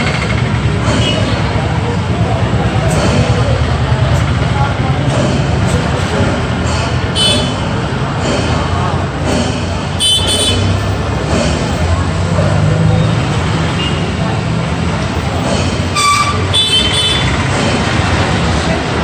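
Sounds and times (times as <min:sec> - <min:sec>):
crowd chatter: 0:00.0 - 0:19.0
road traffic passing: 0:00.0 - 0:19.0
vehicle horn toots: 0:10.0 - 0:10.7, 0:15.9 - 0:17.3.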